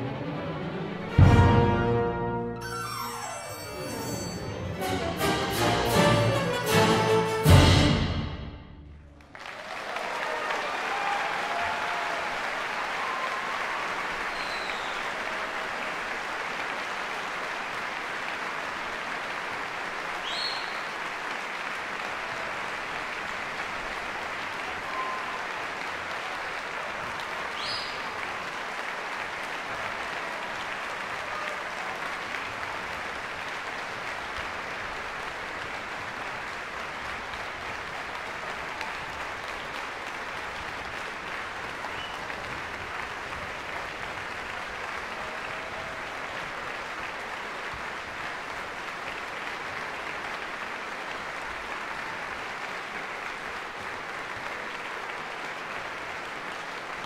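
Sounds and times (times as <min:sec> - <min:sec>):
short high-pitched sound: 0:02.4 - 0:08.0
audience applauding: 0:02.6 - 0:07.9, 0:09.0 - 0:57.0.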